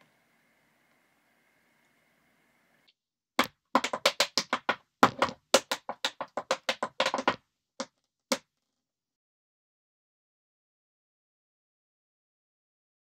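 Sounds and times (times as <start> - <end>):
tap shoes on wooden floor: 3.4 - 7.4.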